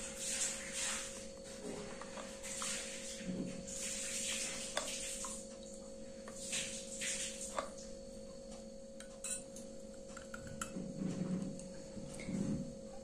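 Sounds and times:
liquid swishing: 0.0 - 5.5
faint steady hum: 0.0 - 13.0
spoon clinking against bowl: 9.1 - 9.7.

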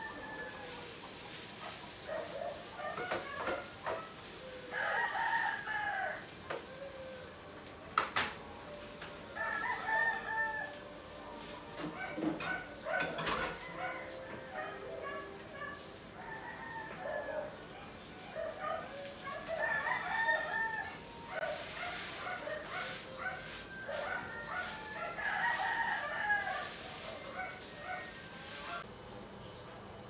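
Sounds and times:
rooster crowing: 0.0 - 1.1, 3.0 - 7.5, 8.7 - 17.6, 18.6 - 28.8
dishes clattering at a sink: 11.8 - 13.7.

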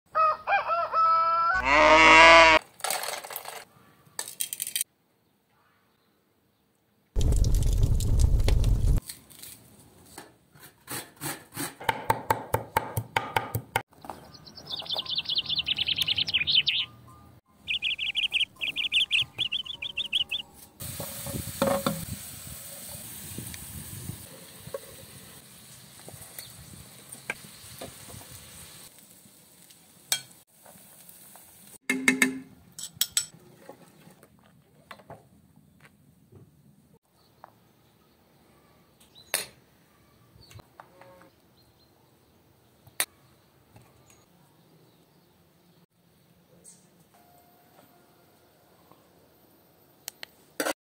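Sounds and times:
high bird chirping: 14.1 - 20.7
sauce sizzling in a pan: 20.8 - 31.8
metal pots and lids clinking: 31.9 - 33.4.

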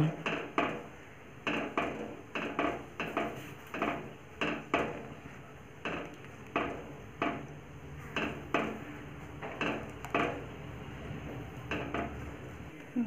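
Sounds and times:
wooden spatula knocking metal pot: 0.1 - 5.2, 5.8 - 7.5, 8.1 - 10.5, 11.6 - 12.3.

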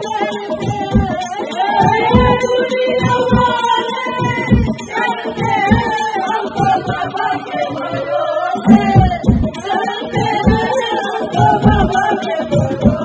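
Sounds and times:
amplified music: 0.0 - 13.0
drum beat thumping: 0.0 - 13.0
women singing into microphones: 0.0 - 13.0.

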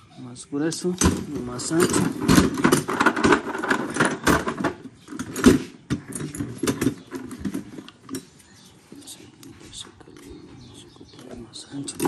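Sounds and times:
metal tools clattering in toolbox: 1.0 - 8.4.

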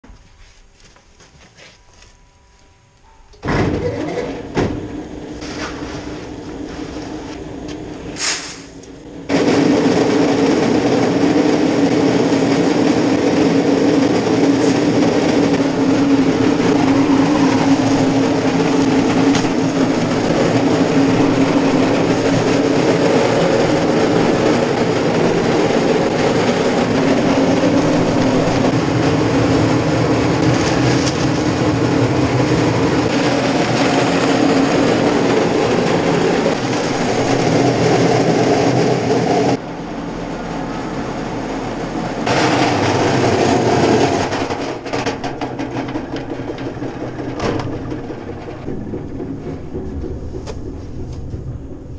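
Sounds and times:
feed mill grinding: 8.8 - 39.6, 42.1 - 51.9.

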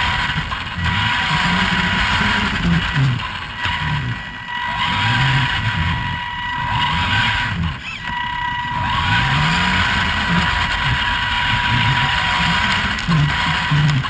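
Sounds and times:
thin high whine: 0.0 - 14.0
toy truck electric motor whine: 0.0 - 14.0
tyres crunching on gravel: 8.8 - 14.0.

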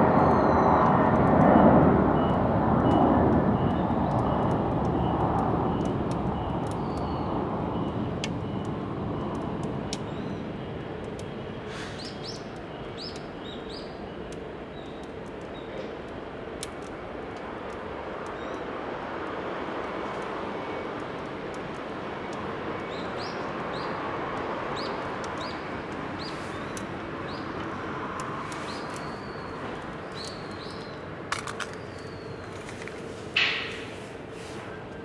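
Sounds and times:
wood fire crackling and popping: 2.8 - 7.2, 14.3 - 33.9
small birds chirping: 6.6 - 7.3, 11.2 - 14.1, 22.8 - 24.0, 24.7 - 27.6, 28.4 - 32.8.

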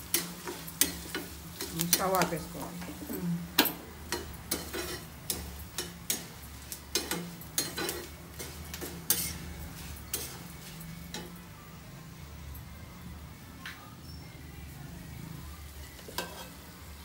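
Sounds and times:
steel spatula scraping a pan: 0.0 - 3.1, 4.1 - 11.4, 15.8 - 16.8.

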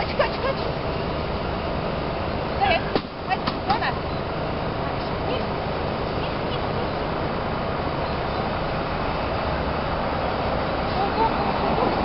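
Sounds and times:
outdoor background rumble: 0.0 - 12.0.

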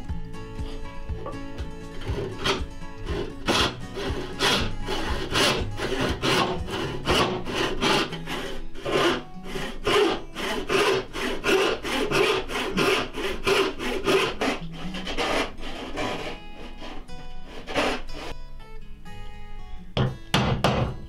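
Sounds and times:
hand saw cutting wood: 0.5 - 18.4.

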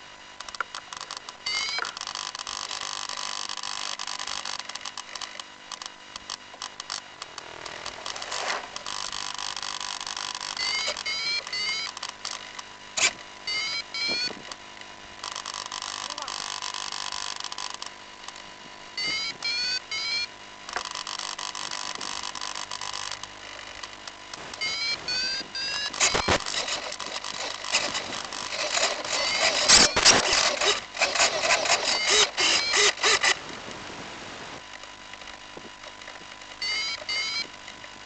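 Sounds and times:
loud crackling noise: 2.0 - 13.3, 20.6 - 36.6.

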